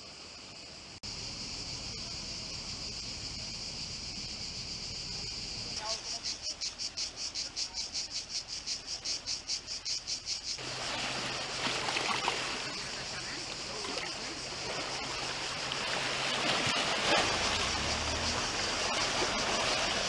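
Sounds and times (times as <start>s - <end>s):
cicadas buzzing: 0.0s - 20.0s
small waves on rocky shore: 5.7s - 20.0s.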